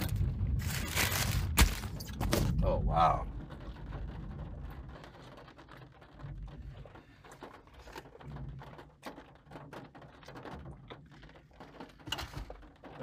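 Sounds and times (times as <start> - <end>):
low rumble: 0.0 - 7.2
rain tapping on car windshield: 0.0 - 13.0.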